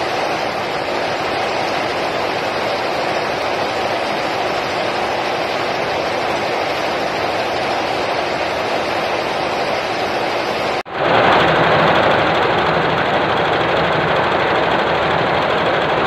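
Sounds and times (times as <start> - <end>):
embroidery machine running: 10.9 - 16.0.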